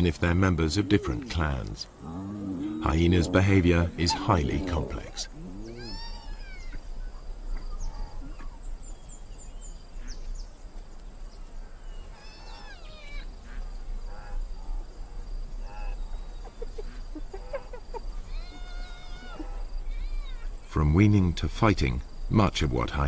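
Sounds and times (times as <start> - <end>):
hyenas whining squeals: 2.2 - 6.8, 12.2 - 13.3, 18.3 - 20.6.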